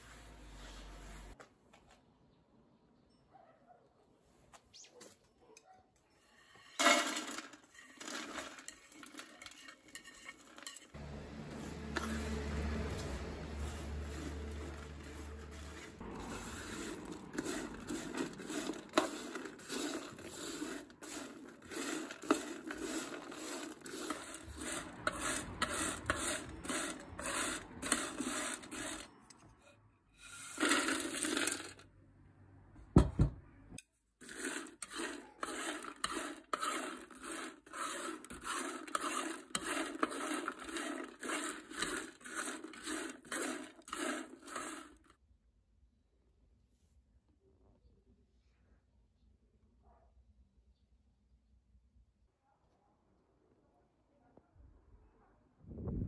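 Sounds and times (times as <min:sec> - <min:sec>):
wooden spoon scraping a pan: 0:00.0 - 0:01.4, 0:06.2 - 0:31.8, 0:34.2 - 0:45.1
dried slices turned on a pan: 0:06.3 - 0:29.4, 0:30.2 - 0:31.8, 0:34.2 - 0:45.1.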